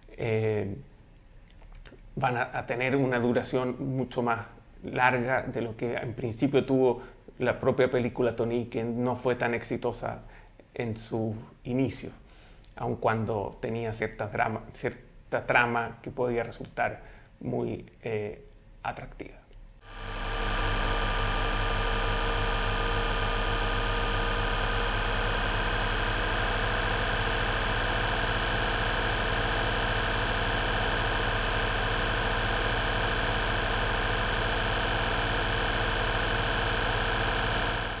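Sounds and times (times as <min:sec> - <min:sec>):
mechanical whirring and clatter: 0:19.9 - 0:38.0.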